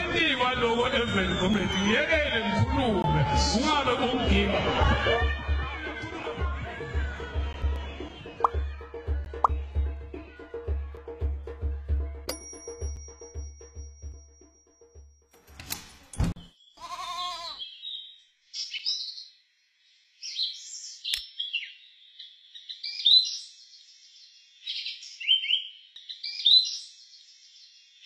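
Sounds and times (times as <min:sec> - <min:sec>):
goat bleating: 0:16.8 - 0:17.6.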